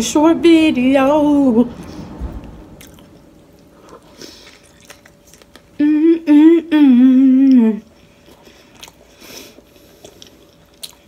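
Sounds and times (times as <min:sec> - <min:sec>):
chewing and mouth clicks: 0:02.8 - 0:05.7, 0:08.1 - 0:11.0
woman humming: 0:05.8 - 0:08.0.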